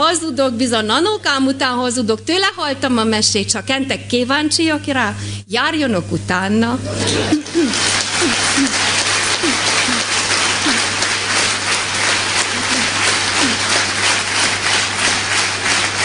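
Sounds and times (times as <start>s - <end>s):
audience applauding: 7.0s - 16.0s.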